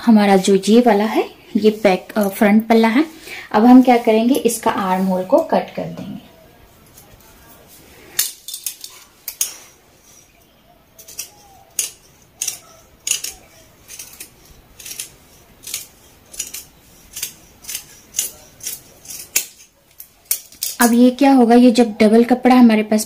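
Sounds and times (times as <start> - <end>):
scissors snipping fabric: 11.0 - 19.6.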